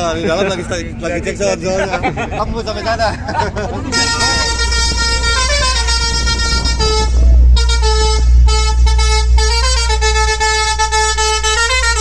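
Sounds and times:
heavy low rumble: 0.0s - 12.0s
musical horn playing a tune: 3.9s - 12.0s.

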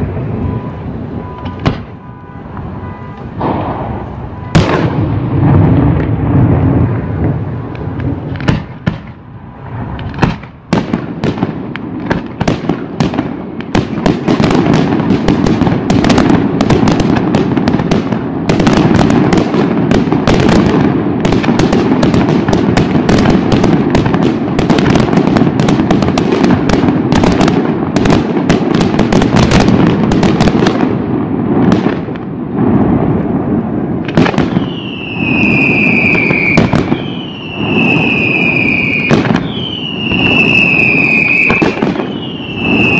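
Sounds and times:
fireworks bangs and crackle: 0.0s - 42.9s
falling whistles: 34.6s - 42.9s.

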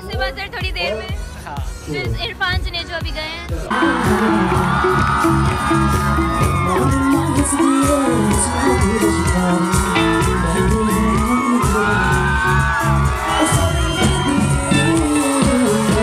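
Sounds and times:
loud live band music: 0.0s - 16.0s
crowd whooping and cheering: 3.7s - 16.0s.

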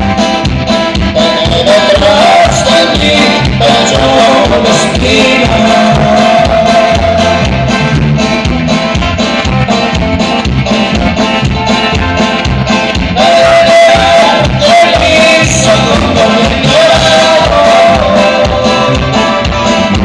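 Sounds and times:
live band music: 0.0s - 20.0s.

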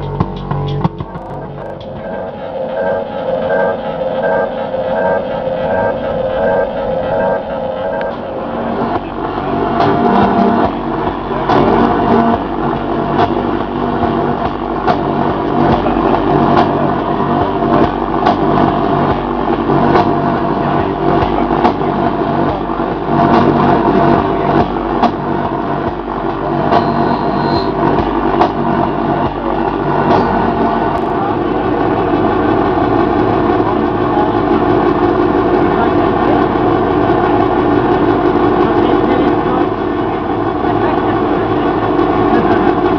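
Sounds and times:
dense electronic drone: 0.0s - 42.9s
electronic clicks and crackles: 0.7s - 12.4s.

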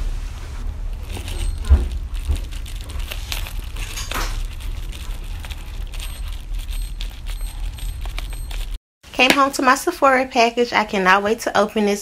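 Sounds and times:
steady low rumble: 0.0s - 8.8s.

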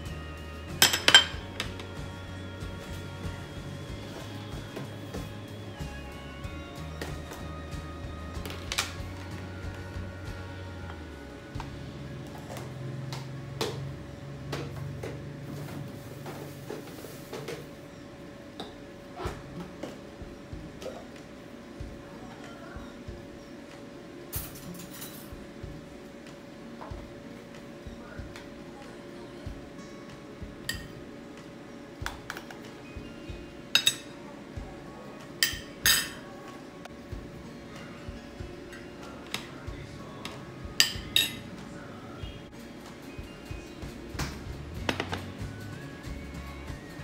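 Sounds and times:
refrigerator hum: 0.0s - 47.0s
metal spoon clinking on plate: 33.8s - 34.1s, 35.4s - 36.2s.

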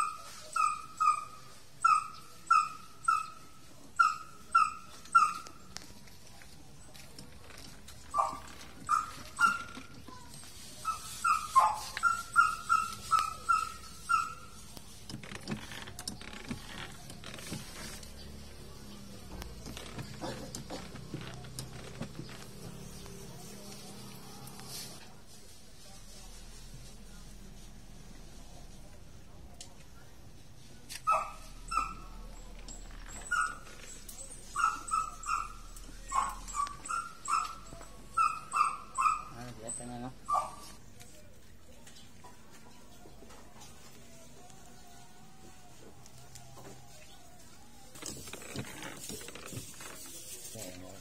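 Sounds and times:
dog yipping: 0.0s - 5.7s, 8.1s - 14.6s, 30.9s - 40.8s
faint clicks and rustles: 4.9s - 51.0s.

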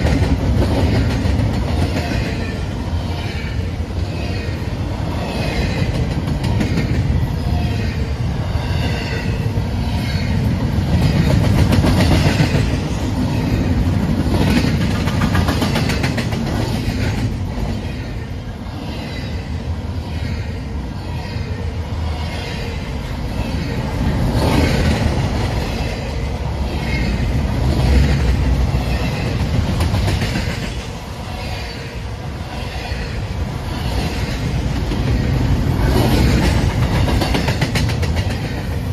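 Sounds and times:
train wheels clattering over rail joints: 10.3s - 17.9s, 27.6s - 31.0s, 33.9s - 38.9s.

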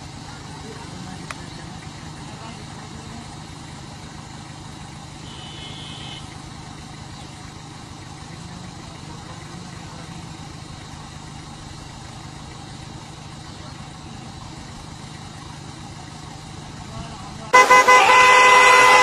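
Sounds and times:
vehicle engines idling: 0.0s - 19.0s
brief high tone: 17.6s - 19.0s.

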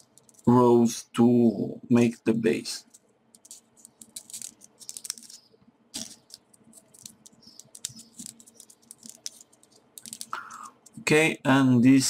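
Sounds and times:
paper pieces crackling and clicking: 0.0s - 0.6s, 2.8s - 11.0s.

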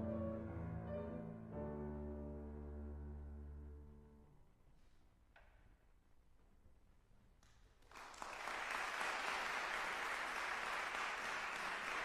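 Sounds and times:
audience applauding: 7.8s - 12.0s.

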